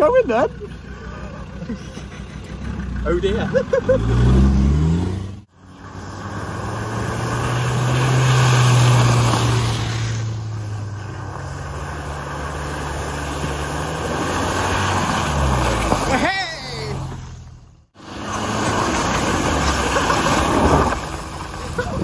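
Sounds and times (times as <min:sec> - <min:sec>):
vehicle engines running: 0:00.0 - 0:22.0
tyres splashing through water: 0:05.8 - 0:16.3, 0:18.0 - 0:22.0.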